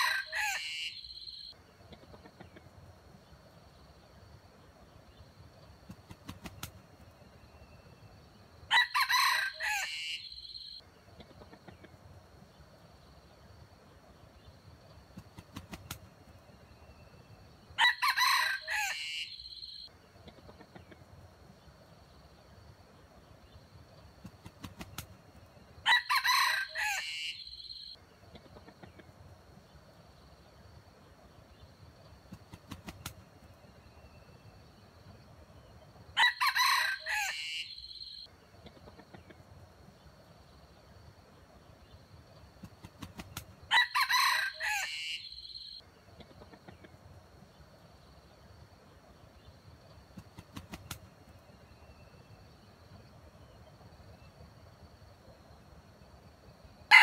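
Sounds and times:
rooster crowing: 0.0s - 1.3s, 8.7s - 10.6s, 17.8s - 19.8s, 25.8s - 27.9s, 36.2s - 38.0s, 43.7s - 45.7s.

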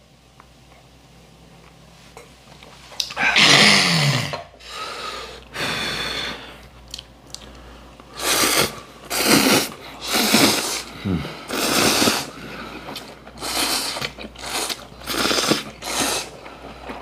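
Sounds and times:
noodles being slurped: 8.1s - 17.0s
chewing: 12.0s - 17.0s.

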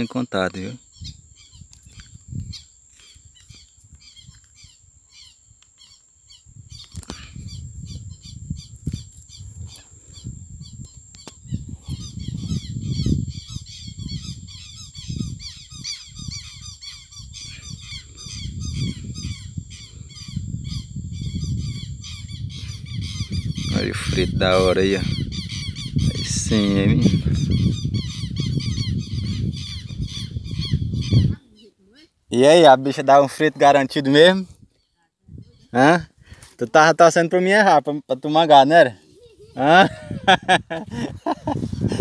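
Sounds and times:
small birds chirping: 0.0s - 32.1s
wind rumbling on microphone: 0.8s - 5.6s, 6.3s - 31.6s, 34.3s - 36.5s, 39.0s - 42.0s.

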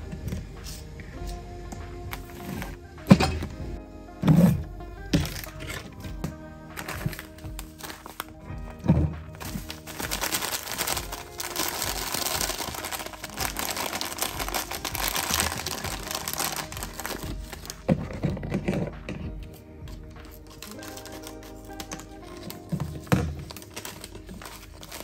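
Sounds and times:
background music: 0.0s - 25.0s
plastic bag crinkling: 6.7s - 18.8s, 20.2s - 25.0s.

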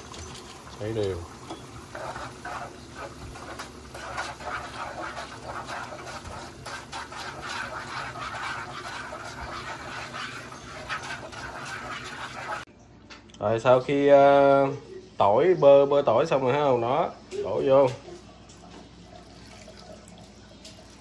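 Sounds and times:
wooden utensil stirring: 0.0s - 12.7s
sauce bubbling in a pan: 0.3s - 12.7s.

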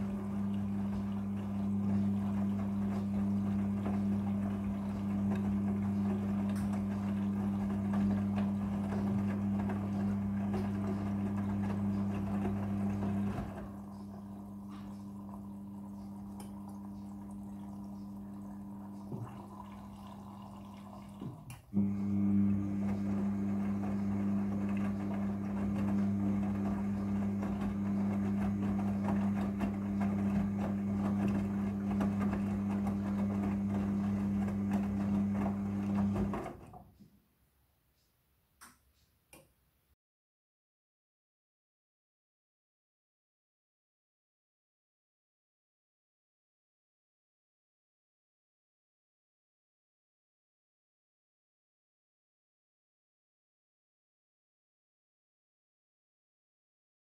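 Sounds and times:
laundry sloshing in drum: 0.0s - 36.8s
washing machine motor humming: 0.0s - 37.0s.

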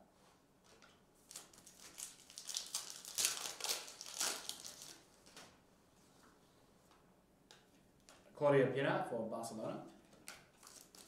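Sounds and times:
foil wrapper crinkling: 0.7s - 5.6s, 10.2s - 11.0s.

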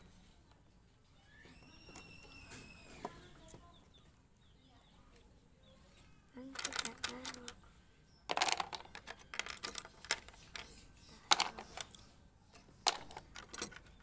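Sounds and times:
pencils clattering into holder: 6.4s - 7.6s, 8.3s - 14.0s.

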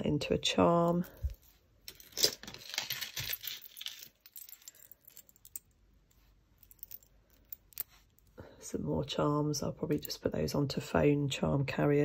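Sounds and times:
metal jewellery clinking and jingling: 0.8s - 8.4s.

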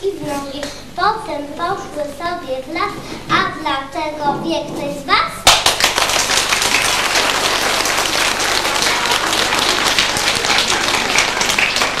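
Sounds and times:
children and adults clapping: 5.4s - 12.0s.

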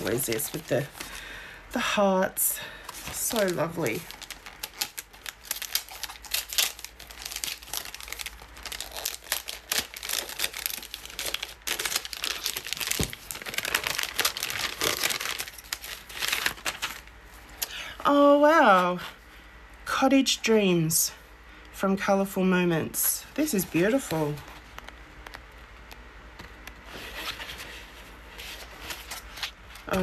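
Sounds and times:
wrapping paper tearing and crumpling: 0.0s - 1.2s, 2.9s - 17.1s.

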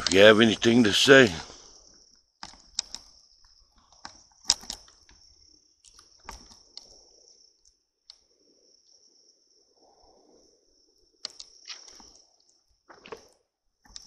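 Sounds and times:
crickets trilling: 0.0s - 14.0s
sharp clicks and crunches: 2.4s - 3.1s, 3.8s - 5.2s, 5.8s - 6.9s.

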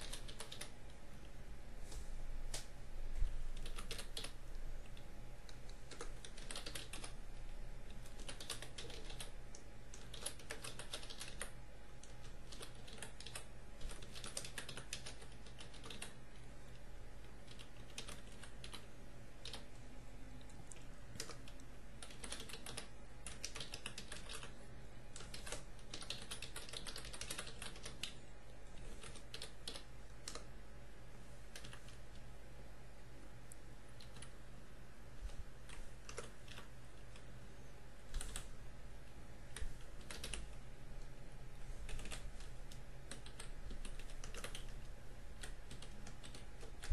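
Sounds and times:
typing on computer keyboard: 0.0s - 1.0s, 2.5s - 7.2s, 7.9s - 16.2s, 17.3s - 19.7s, 20.7s - 28.2s, 28.9s - 30.5s, 31.5s - 32.0s, 34.0s - 34.4s, 35.6s - 37.3s, 38.1s - 38.5s, 39.5s - 40.5s, 41.8s - 46.9s
steady low hum: 0.0s - 46.9s.

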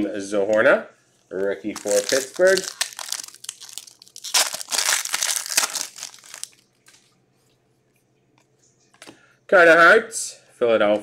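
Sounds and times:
foil wrapper tearing and crinkling: 1.7s - 7.0s.

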